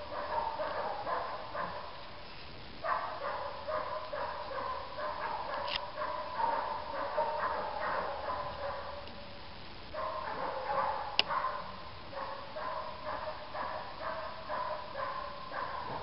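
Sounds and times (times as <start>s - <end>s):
puppy barking and yipping: 2.9s - 9.1s.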